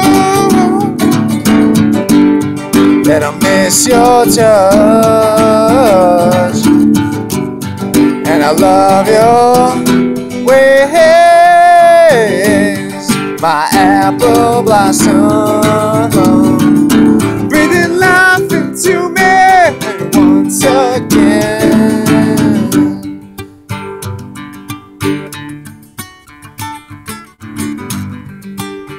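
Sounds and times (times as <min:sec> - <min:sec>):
man singing: 0:00.0 - 0:01.3, 0:02.8 - 0:07.0, 0:08.0 - 0:23.2
strummed acoustic guitar: 0:00.0 - 0:28.9.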